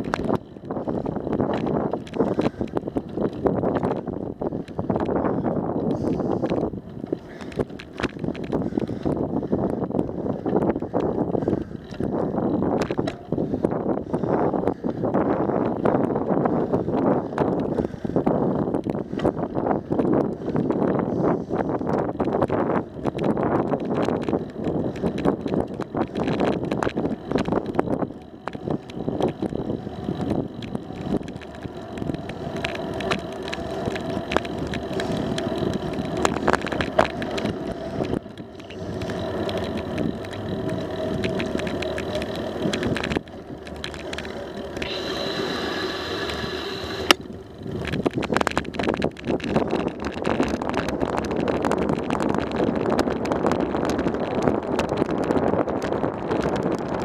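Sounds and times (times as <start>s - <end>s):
rattles and knocks from bumps: 0.0s - 45.1s, 47.1s - 57.0s
bicycle tyre noise: 0.0s - 57.0s
wind on microphone: 0.0s - 57.0s
high whine: 22.3s - 52.2s.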